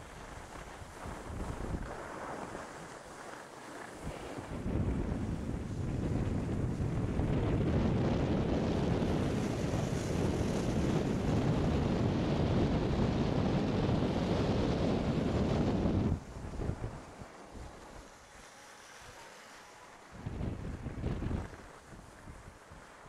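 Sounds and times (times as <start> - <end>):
wind buffeting microphone: 0.0 - 3.0, 3.9 - 18.1, 20.1 - 23.0
skis sliding over snow: 0.0 - 8.3, 16.2 - 23.0.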